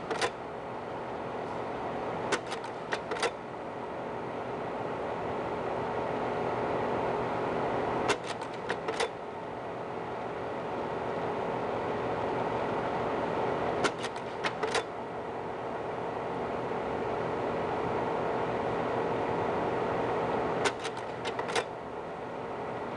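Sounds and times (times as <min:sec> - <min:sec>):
projector mechanical clicks: 0:00.0 - 0:00.4, 0:02.3 - 0:03.4, 0:08.1 - 0:09.2, 0:13.8 - 0:14.9, 0:20.6 - 0:21.8
projector fan humming: 0:00.0 - 0:22.9.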